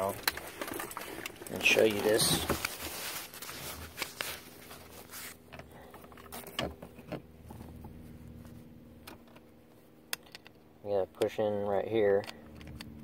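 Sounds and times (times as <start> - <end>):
metal clicks and rustles: 0.0 - 8.0.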